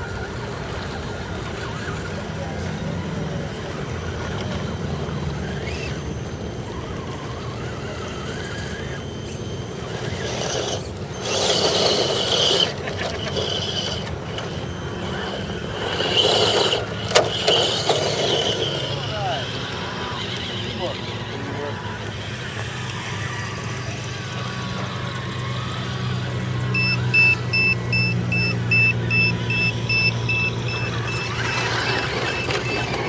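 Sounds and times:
electric motors whining: 0.0s - 33.0s
tyres scrabbling on gravel: 9.9s - 26.7s, 30.9s - 33.0s.

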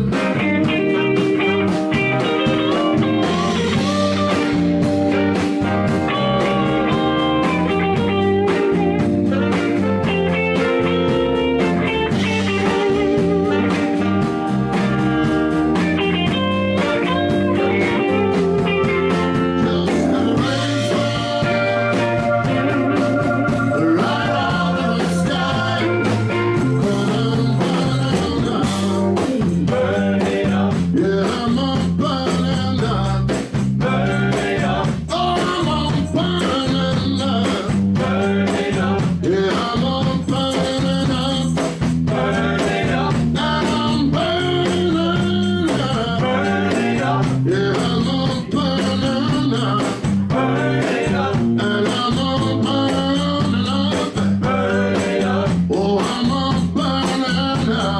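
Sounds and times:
saxophone lead line: 0.0s - 30.8s
blues-rock band playing: 0.0s - 57.9s.

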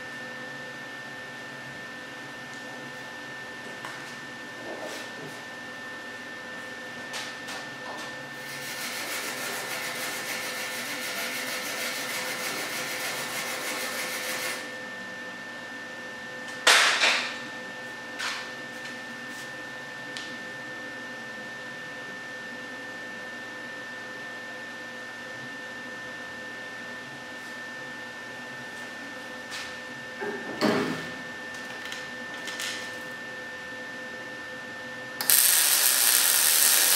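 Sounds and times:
welder sizzling crackle: 8.4s - 14.6s, 35.2s - 36.9s
loud bursts of noise: 35.2s - 36.9s.

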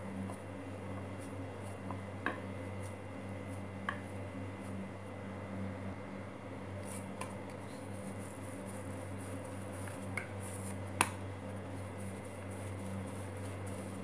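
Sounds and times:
steady low hum: 0.0s - 14.0s
hands patting dough on wooden board: 0.2s - 4.7s.

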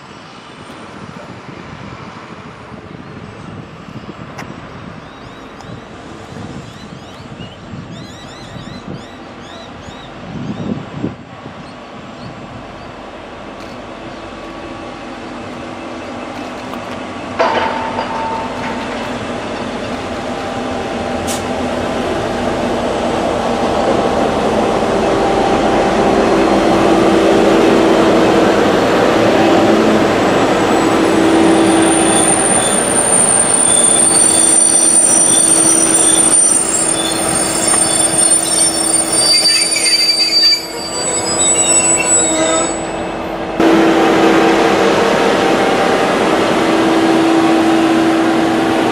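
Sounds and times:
train passing: 0.0s - 48.9s
train wheels squealing: 5.0s - 10.7s, 30.6s - 43.2s
sharp clank: 17.4s - 19.4s.

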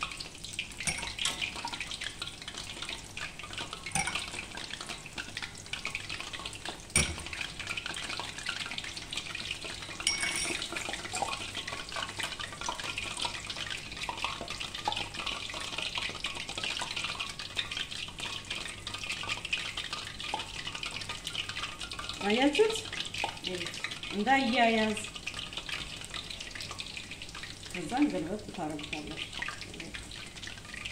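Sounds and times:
dough sizzling in hot oil: 0.0s - 30.9s
wire skimmer stirring oil: 9.6s - 16.8s.

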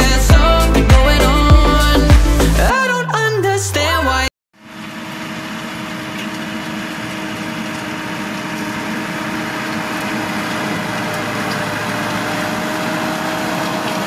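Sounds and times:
tractor diesel engine running: 4.6s - 14.0s.

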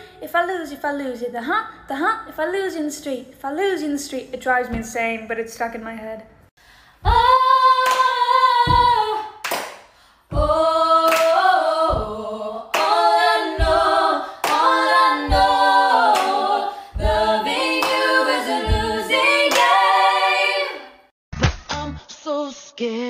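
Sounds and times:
low percussion thumps: 7.0s - 7.5s, 8.6s - 9.1s, 10.3s - 11.0s, 11.8s - 12.4s, 13.5s - 14.0s, 15.2s - 15.8s, 16.9s - 19.2s
women singing in harmony: 7.0s - 9.4s, 10.3s - 21.1s
hand claps: 7.8s - 8.1s, 8.7s - 10.0s, 11.1s - 12.0s, 12.7s - 13.0s, 16.1s - 16.4s.

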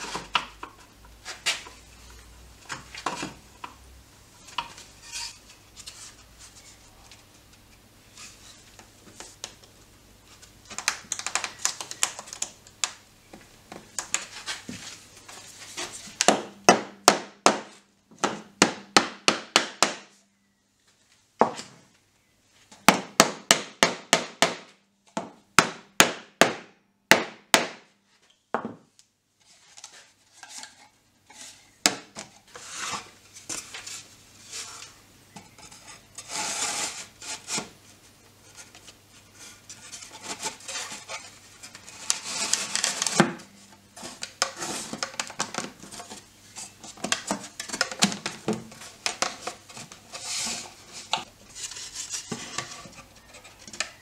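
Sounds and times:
wood clattering and rubbing: 32.2s - 54.0s.

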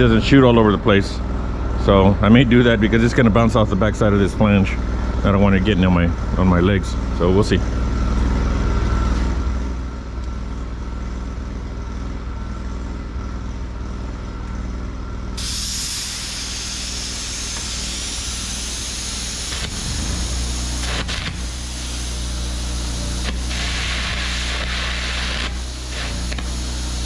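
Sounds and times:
low machine hum: 0.0s - 27.0s
compressed air hissing: 15.4s - 27.0s
electric arc crackles: 15.5s - 27.0s.

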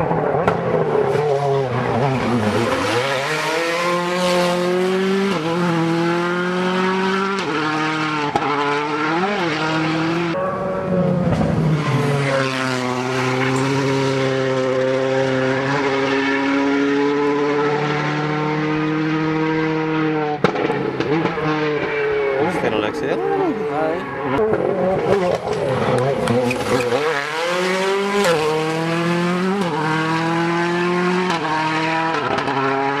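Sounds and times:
rally car engines running hard: 0.0s - 33.0s.

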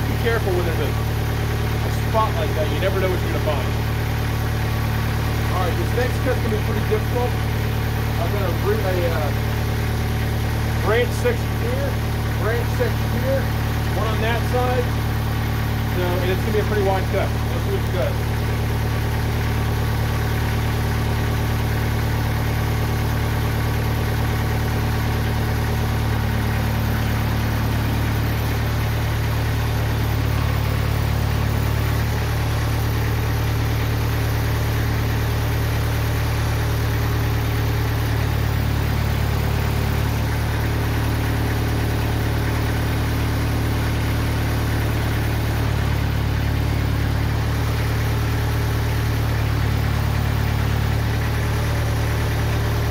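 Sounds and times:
sawmill engine humming: 0.0s - 52.9s.

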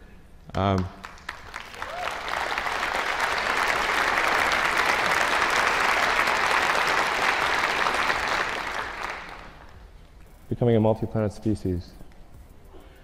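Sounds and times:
large audience applauding: 0.5s - 9.9s.

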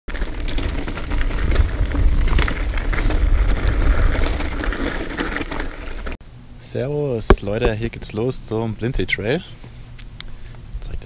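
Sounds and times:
bike clattering over rough ground: 0.1s - 6.2s
wind buffeting microphone: 0.6s - 4.9s.

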